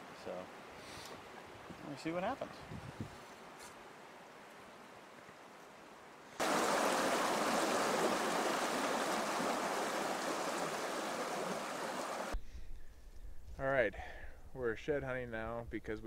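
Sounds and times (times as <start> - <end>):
flowing stream rushing: 6.4 - 12.4.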